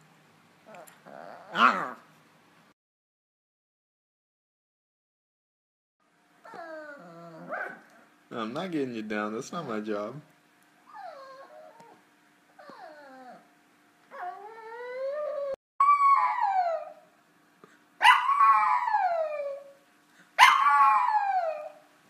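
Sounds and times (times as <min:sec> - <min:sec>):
puppy whining and howling: 0:00.7 - 0:02.1, 0:06.4 - 0:08.2, 0:10.9 - 0:13.5, 0:14.1 - 0:17.1, 0:18.0 - 0:19.8, 0:20.4 - 0:21.9.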